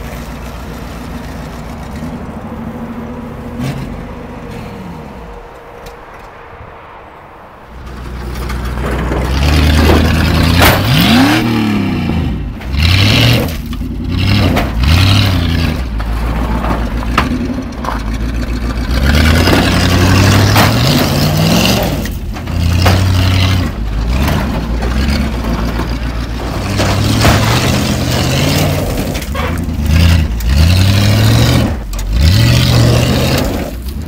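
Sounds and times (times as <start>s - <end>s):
knocks and clatter: 7.8s - 34.0s
car engine revving hard: 9.3s - 15.9s, 26.6s - 33.8s.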